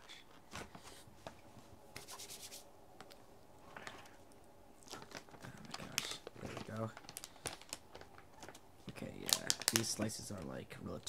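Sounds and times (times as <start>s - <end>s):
plastic packaging rustling: 3.7s - 10.6s.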